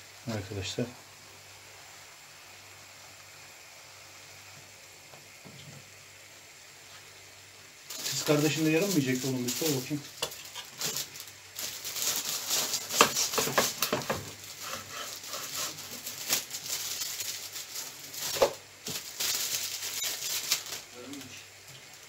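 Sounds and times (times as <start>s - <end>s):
plastic bag crinkling: 7.9s - 22.0s.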